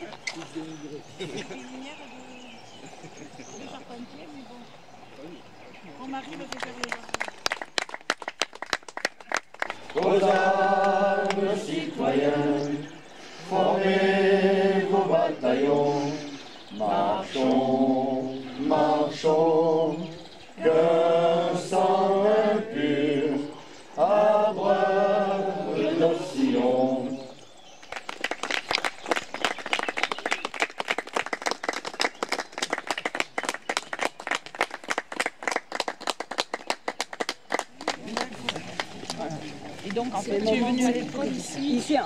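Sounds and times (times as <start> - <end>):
applause: 6.3 - 11.4, 27.8 - 40.6
choir singing a cappella: 9.9 - 27.5.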